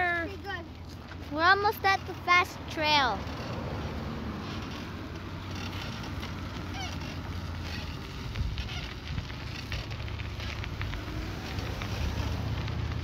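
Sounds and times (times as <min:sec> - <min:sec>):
tyres rolling over gravel: 0:00.0 - 0:13.0
wind rumbling on microphone: 0:03.3 - 0:13.0.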